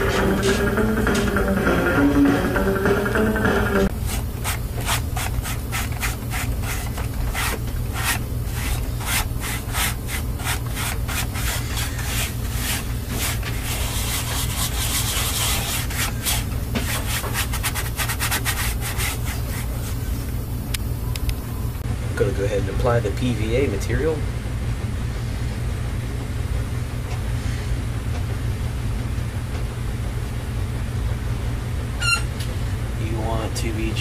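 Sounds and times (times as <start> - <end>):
steady low hum: 0.0 - 34.0
rapid rubbing strokes: 4.0 - 20.2.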